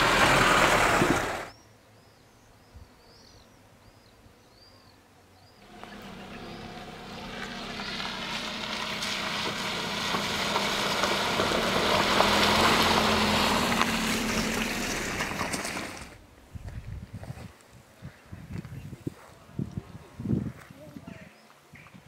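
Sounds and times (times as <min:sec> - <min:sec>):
car engine running: 0:00.0 - 0:01.5, 0:05.6 - 0:16.2
tyres splashing through water: 0:00.0 - 0:01.5, 0:05.7 - 0:16.2.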